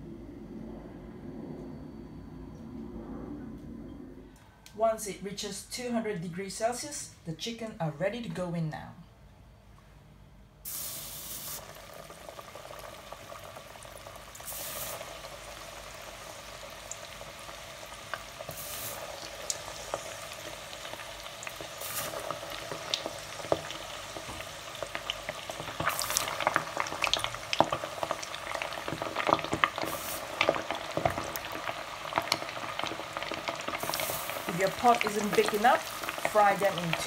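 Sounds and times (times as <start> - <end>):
chicken wings deep-frying in oil: 10.7 - 37.0.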